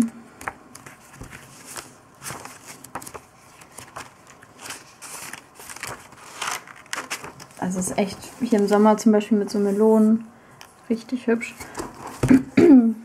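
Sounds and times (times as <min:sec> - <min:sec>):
paper pages being turned: 0:00.4 - 0:10.0.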